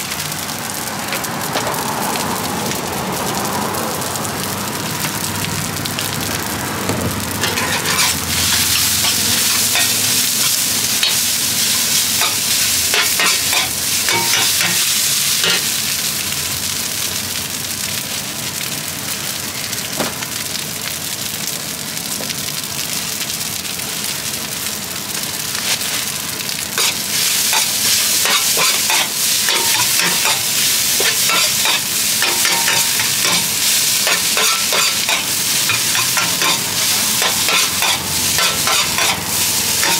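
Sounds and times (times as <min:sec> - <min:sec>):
rice sizzling in a wok: 0:00.0 - 0:39.9
metal spatula scraping a pan: 0:07.4 - 0:15.7, 0:26.8 - 0:39.9.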